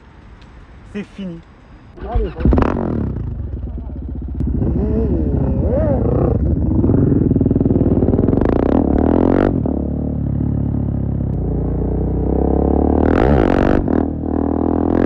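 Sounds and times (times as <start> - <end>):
motorcycle engine revving: 2.0 - 15.0.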